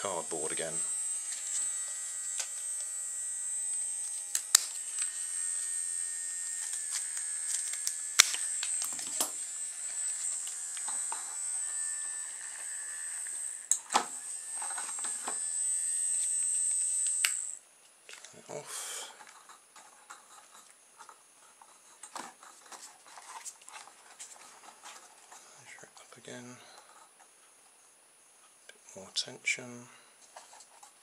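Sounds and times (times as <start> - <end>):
small motor whining: 0.5 - 17.6.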